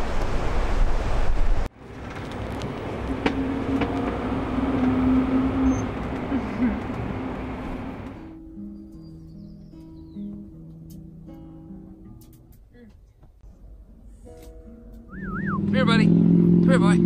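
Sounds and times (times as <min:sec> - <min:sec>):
breaking surf: 0:00.0 - 0:05.0
low engine hum: 0:00.0 - 0:08.4, 0:13.4 - 0:17.0
road rumble: 0:00.0 - 0:17.0.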